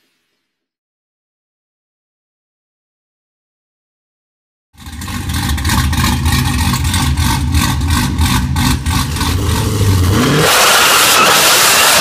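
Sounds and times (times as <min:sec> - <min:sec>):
car engine idling and revving: 0:04.8 - 0:12.0.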